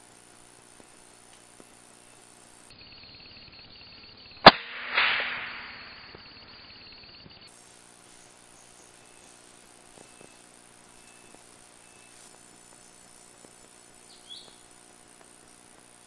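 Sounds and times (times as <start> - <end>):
rustling hiss in trees: 0.0 - 2.7, 7.5 - 16.0
rifle shot: 4.4 - 6.2.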